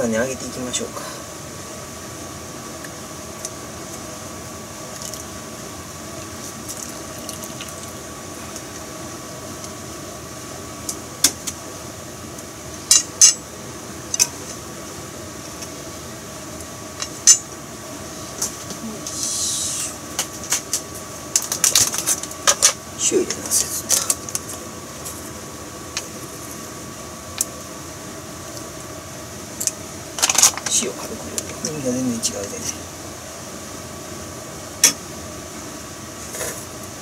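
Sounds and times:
steady hiss: 0.0 - 37.0
batter sizzling in hot oil: 6.1 - 9.3.

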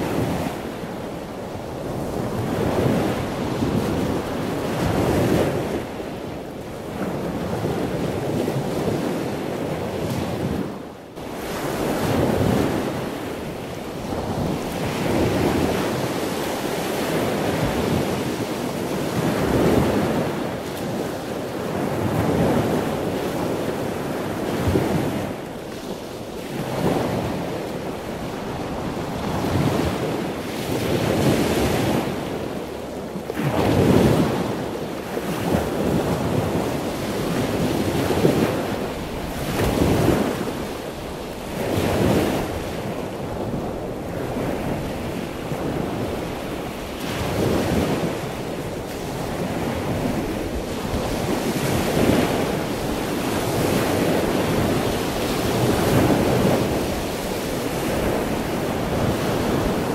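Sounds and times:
sea waves breaking on shore: 0.0 - 59.9.

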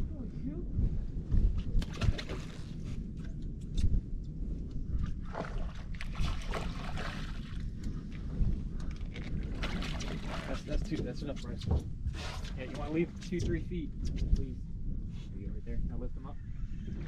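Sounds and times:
wind rumbling on microphone: 0.0 - 17.0.

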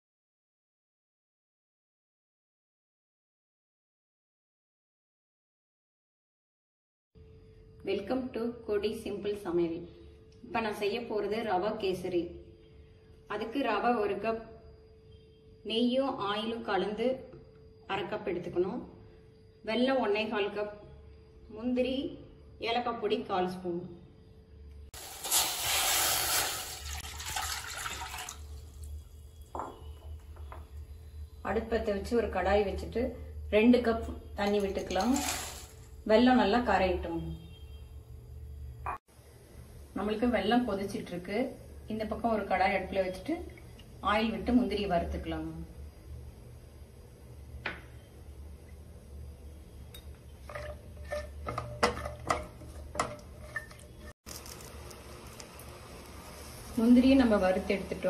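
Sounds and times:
water pouring into a metal pan: 25.0 - 28.9
water splashing: 25.1 - 28.5.

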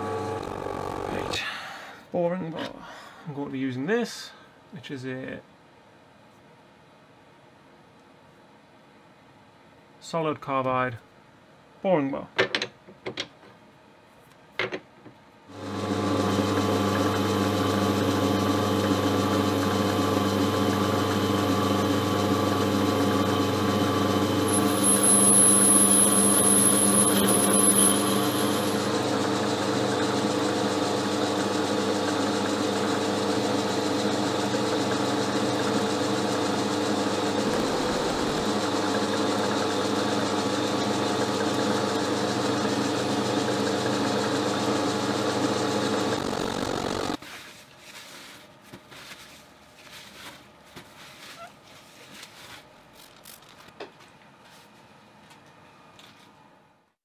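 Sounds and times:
lathe motor humming: 15.6 - 47.2
thin high whine: 24.3 - 29.2.

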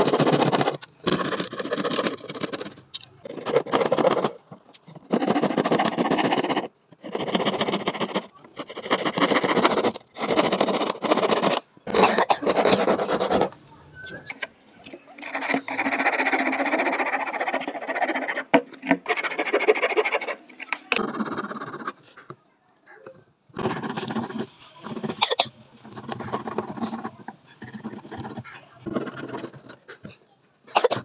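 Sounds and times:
hand saw cutting wood: 0.0 - 13.5, 14.3 - 22.0
rasp file scraping wood: 0.0 - 13.6, 14.3 - 22.4, 23.6 - 31.0.

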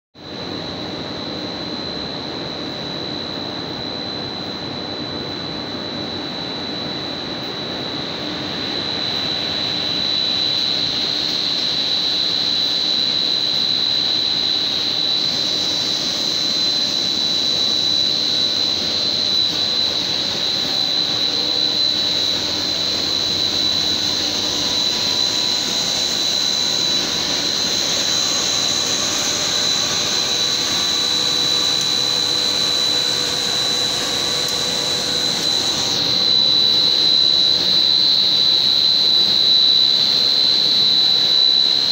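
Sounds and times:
machine drone with high whine: 0.2 - 41.9.

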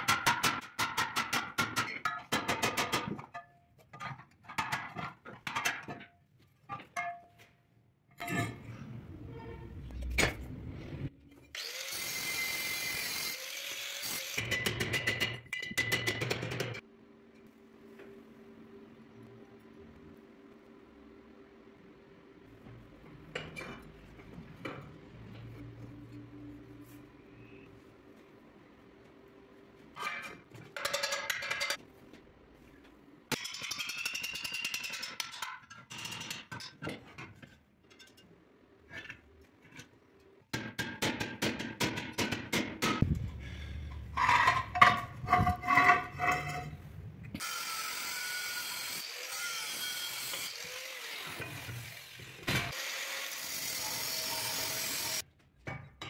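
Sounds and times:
angle grinder cutting steel: 11.5 - 14.5, 47.4 - 55.2
metal scraping: 43.0 - 47.3.

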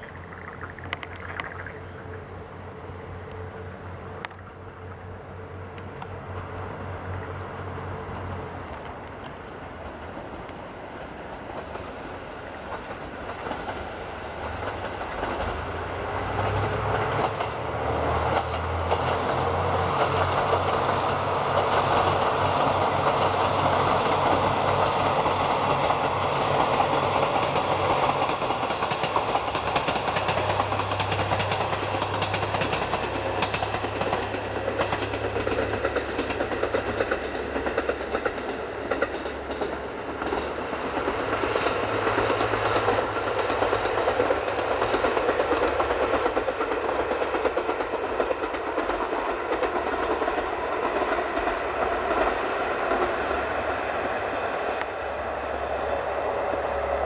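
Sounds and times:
diesel engines humming low: 0.0 - 38.0, 50.6 - 57.0
wheels on rails: 0.0 - 57.0.

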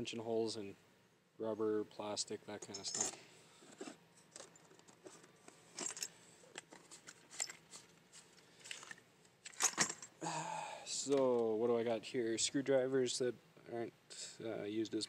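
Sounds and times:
metal tools clinking: 2.6 - 3.2, 4.3 - 7.9, 8.6 - 10.1.

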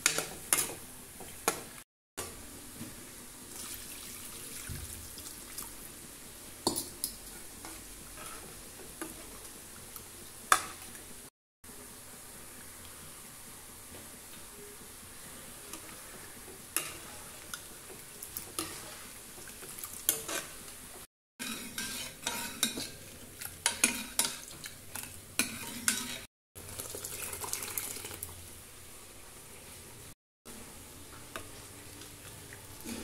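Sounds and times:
spoon scraping metal pot: 20.1 - 20.5, 21.4 - 23.0.

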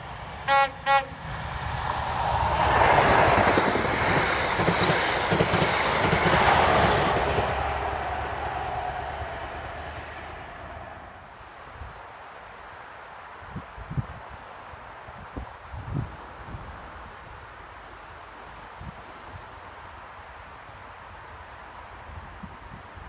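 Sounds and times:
train passing at speed: 0.0 - 11.9
train horn blasts: 0.1 - 1.3.

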